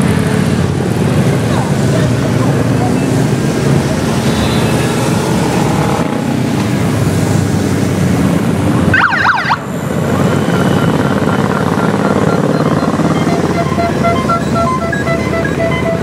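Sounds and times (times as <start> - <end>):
tyres hissing on wet road: 0.0 - 8.9
motorcycle engines passing: 0.0 - 16.0
warbling siren yelp: 8.8 - 16.0.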